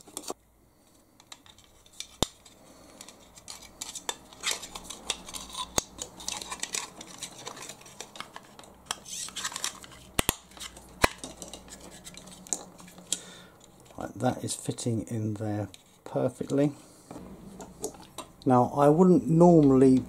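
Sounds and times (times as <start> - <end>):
hard plastic scraping and rattling: 1.2 - 14.0.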